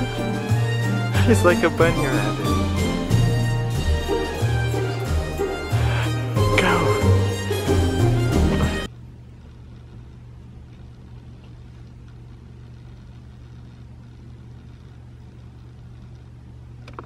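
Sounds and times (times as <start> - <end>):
music: 0.0 - 8.9.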